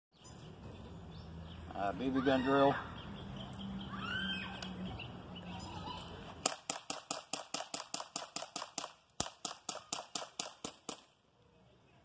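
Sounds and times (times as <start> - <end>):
bb pistol firing rapidly: 6.4 - 11.1.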